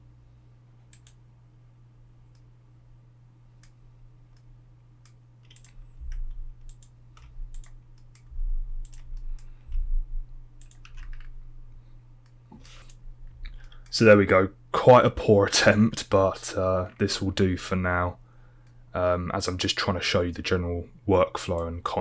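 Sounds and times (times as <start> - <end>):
low electrical hum: 0.0 - 22.0
mouse and keyboard clicks: 5.4 - 9.5
dull low thuds: 8.3 - 8.8, 9.7 - 10.3.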